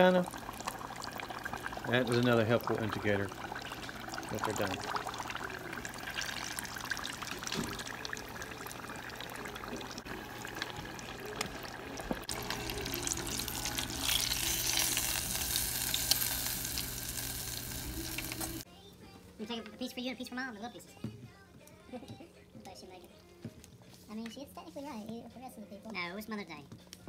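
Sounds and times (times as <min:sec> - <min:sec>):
food deep-frying in oil: 0:00.0 - 0:18.6.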